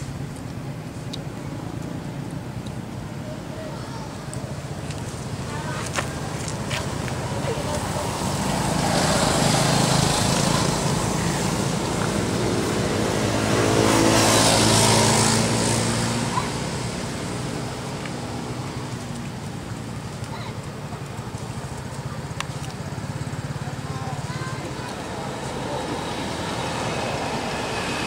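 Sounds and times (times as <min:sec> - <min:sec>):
vehicle engine passing by: 0:05.6 - 0:19.0, 0:23.0 - 0:28.0.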